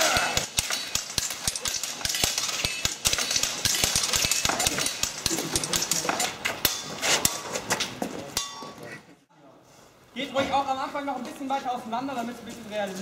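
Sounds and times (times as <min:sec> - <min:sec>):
practice swords clashing: 0:00.0 - 0:09.1.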